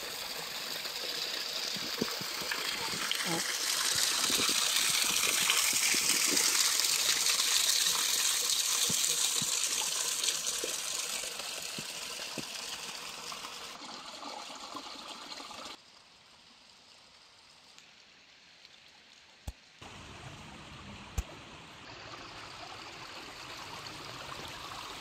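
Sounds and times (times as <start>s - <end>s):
running water hiss: 0.0s - 25.0s.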